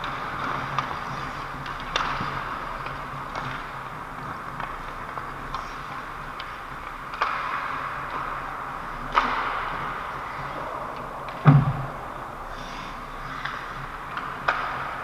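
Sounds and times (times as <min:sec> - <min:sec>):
skate blades scraping ice: 0:00.0 - 0:11.4
hockey sticks and puck clacking: 0:00.0 - 0:15.0.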